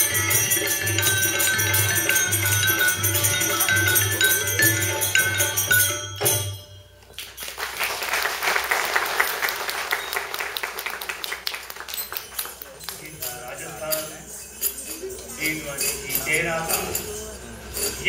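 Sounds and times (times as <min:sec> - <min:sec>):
drum beating in rhythm: 0:00.0 - 0:06.8
metal hand cymbals clinking: 0:00.0 - 0:07.6, 0:11.9 - 0:18.0
audience applause: 0:07.2 - 0:13.0.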